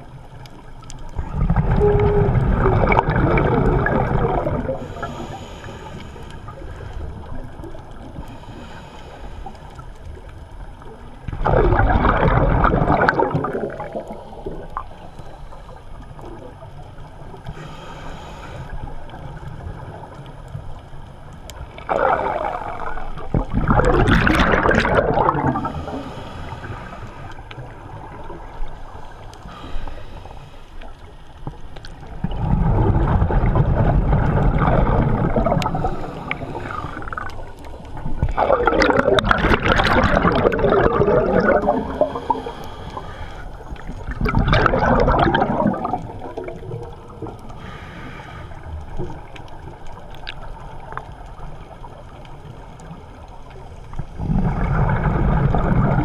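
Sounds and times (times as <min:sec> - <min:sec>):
underwater exhaled bubbles gurgling: 0:00.0 - 0:56.0
breathing hiss: 0:04.8 - 0:07.2, 0:08.2 - 0:10.0, 0:14.1 - 0:16.2, 0:17.5 - 0:19.1, 0:25.6 - 0:27.5, 0:28.9 - 0:31.2, 0:35.6 - 0:37.2, 0:41.8 - 0:43.9, 0:47.5 - 0:48.8.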